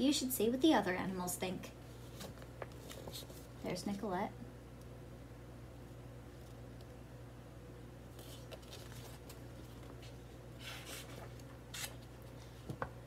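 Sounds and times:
steady low hum: 0:00.0 - 0:13.0
book pages rustling: 0:02.0 - 0:03.6, 0:08.1 - 0:12.9.

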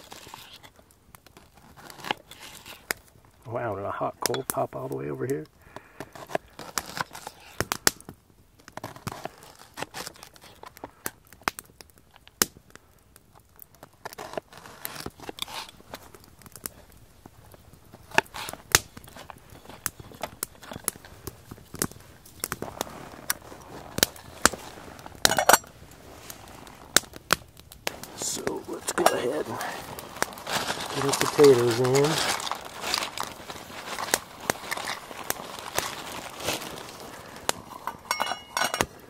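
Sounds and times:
wood fire popping and crackling: 0:00.0 - 0:39.0.

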